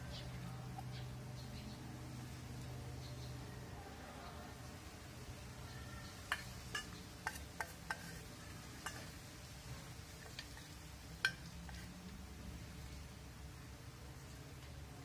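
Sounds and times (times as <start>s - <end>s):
metal spoon clinking on steel bowl: 6.2s - 8.2s, 8.8s - 9.2s.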